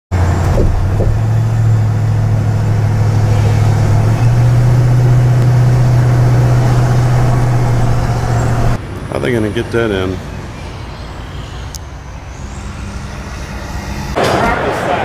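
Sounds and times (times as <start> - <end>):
car engine and road noise: 0.1 - 14.2.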